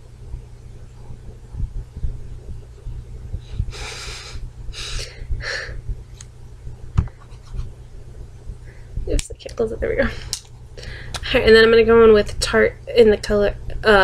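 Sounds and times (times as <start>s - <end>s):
low handling thumps: 0.0s - 3.8s.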